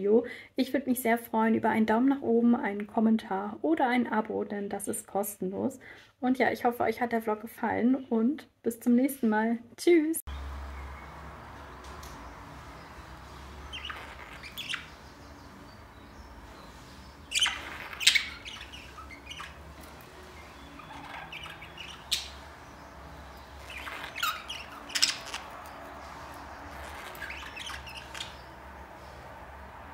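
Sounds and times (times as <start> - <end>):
budgerigars chirping: 10.3 - 29.6
steady low hum: 10.3 - 29.9.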